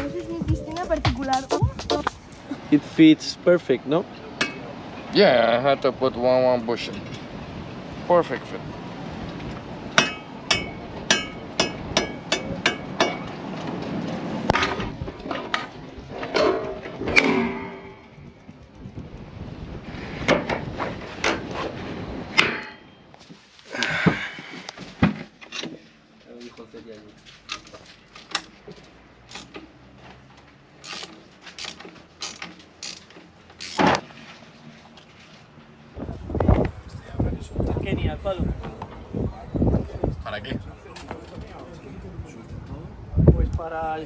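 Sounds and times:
wrench metallic clicks and scrapes: 0:29.2 - 0:29.7, 0:30.8 - 0:34.0.

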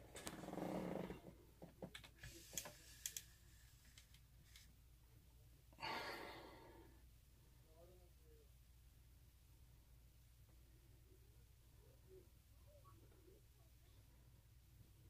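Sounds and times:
person breathing out: 0:05.8 - 0:07.0.

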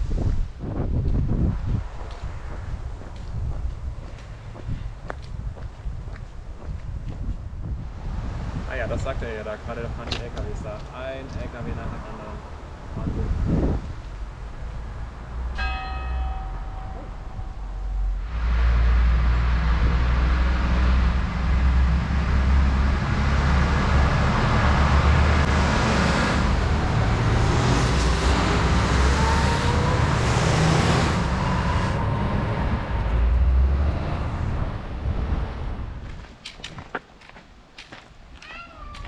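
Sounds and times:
heavy trucks driving past: 0:14.1 - 0:36.0.

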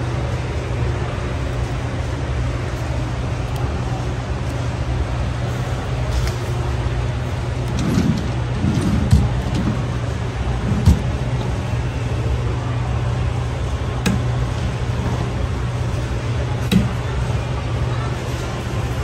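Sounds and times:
low hum of store ambience: 0:00.0 - 0:19.0.

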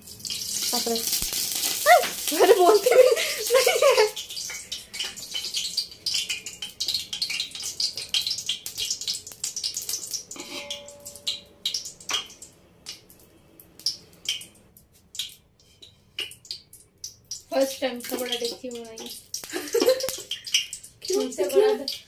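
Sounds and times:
oil crackling and spitting: 0:00.0 - 0:10.6, 0:11.6 - 0:22.0
metallic clank: 0:10.4 - 0:11.6.

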